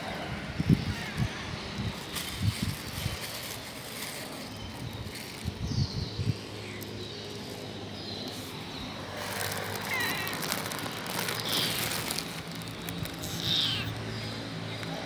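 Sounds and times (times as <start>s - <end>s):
traffic hum: 0.0s - 15.0s
cat crunching dry kibble: 9.0s - 14.0s.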